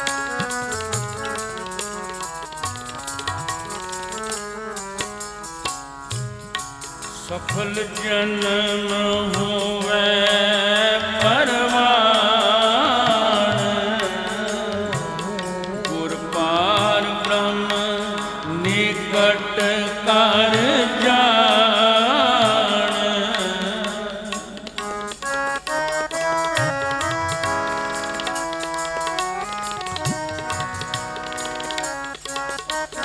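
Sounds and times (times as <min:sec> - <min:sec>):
harmonium melody: 0:00.0 - 0:33.0
tabla strikes: 0:00.0 - 0:33.0
person singing: 0:07.2 - 0:25.2.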